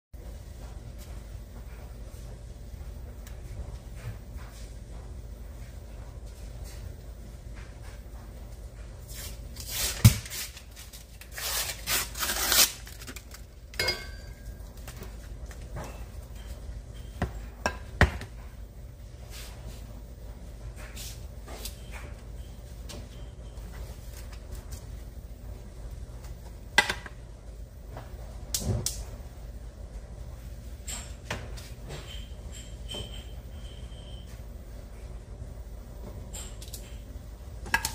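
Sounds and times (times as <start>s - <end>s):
label ripping: 9.6s - 13.4s
cardboard tearing and rubbing: 11.3s - 13.1s.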